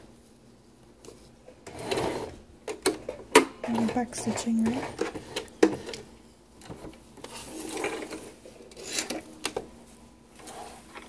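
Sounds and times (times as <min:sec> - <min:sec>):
fabric rustling and sliding: 0:09.8 - 0:11.0.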